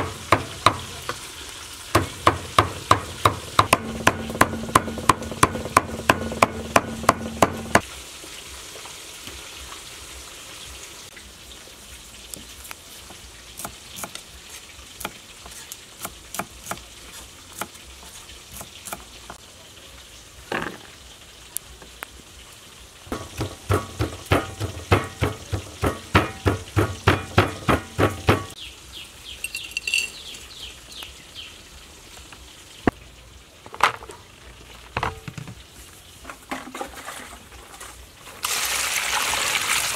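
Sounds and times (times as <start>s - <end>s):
cleaver chopping on wooden board: 0.0s - 1.1s, 2.0s - 7.8s, 23.1s - 28.6s
frying sizzle in hot oil: 0.0s - 39.9s.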